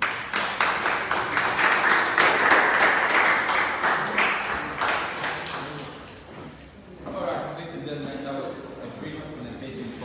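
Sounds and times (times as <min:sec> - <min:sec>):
group applauding: 0:00.0 - 0:06.3.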